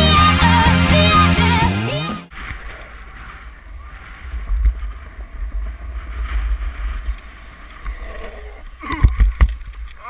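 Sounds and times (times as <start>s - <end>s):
wheels rolling on asphalt: 2.3s - 10.0s.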